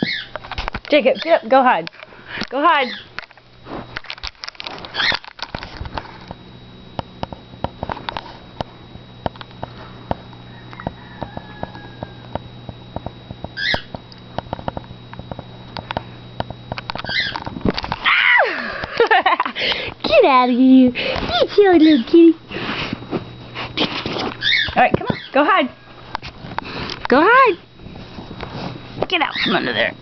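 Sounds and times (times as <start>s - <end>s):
low hum: 1.8s - 24.8s
camera handling rustling and clicks: 3.2s - 6.4s, 14.4s - 18.0s.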